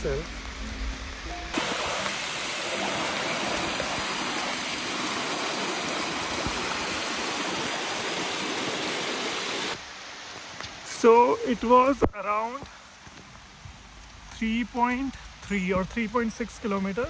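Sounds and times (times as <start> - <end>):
water rushing: 0.0 - 12.6.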